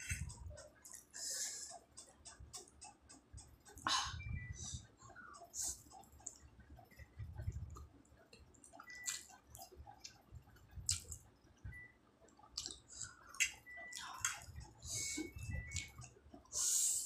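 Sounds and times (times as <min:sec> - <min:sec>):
wet slurping and chewing: 0:12.6 - 0:14.5.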